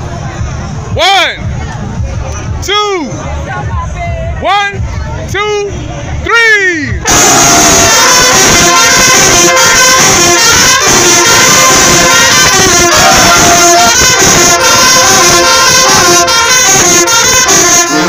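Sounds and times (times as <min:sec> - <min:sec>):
marching band horns playing: 0:06.3 - 0:18.0.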